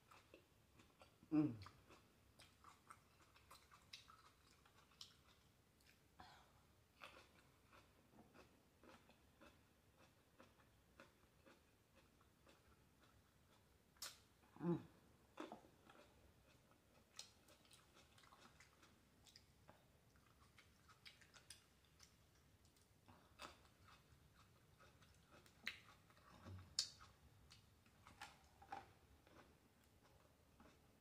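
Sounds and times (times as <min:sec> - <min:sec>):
chewing grapes: 0:00.0 - 0:06.0, 0:06.9 - 0:31.0.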